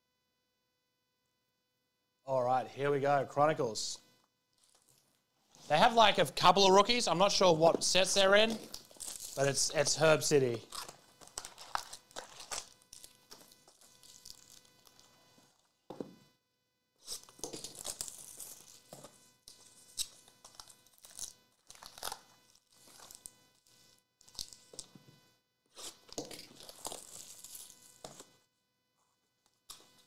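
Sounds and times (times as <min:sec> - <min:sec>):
foil wrappers crinkling: 0:04.5 - 0:06.1, 0:06.8 - 0:15.7, 0:17.0 - 0:23.4, 0:25.8 - 0:28.3.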